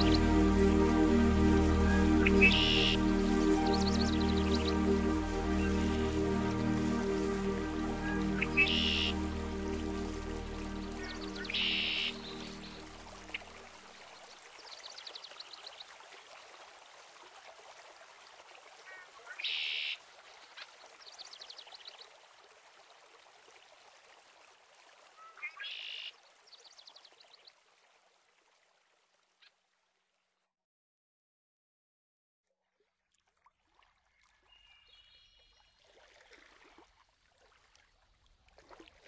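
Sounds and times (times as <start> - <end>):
hiss like running water: 0.0 - 26.1.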